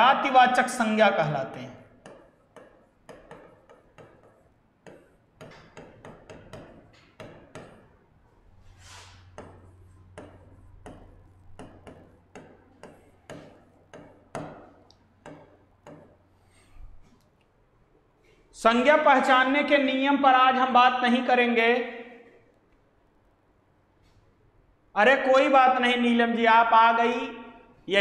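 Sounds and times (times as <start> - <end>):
stylus tapping on touchscreen: 2.0 - 7.9, 9.3 - 16.2.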